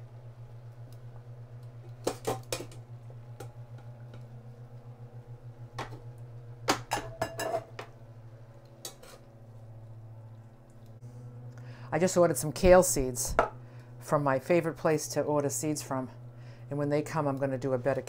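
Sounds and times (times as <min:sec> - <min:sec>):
steady low hum: 0:00.0 - 0:18.0
metal tongs clinking on pots: 0:07.0 - 0:07.7.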